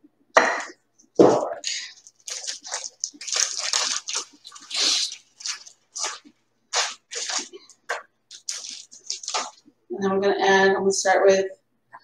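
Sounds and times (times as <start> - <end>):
plastic bag crinkling: 1.6 - 9.7.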